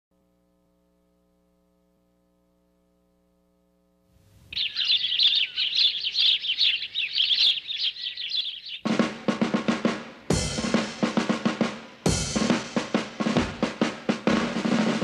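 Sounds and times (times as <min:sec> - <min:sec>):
small birds chirping: 0:04.2 - 0:09.0.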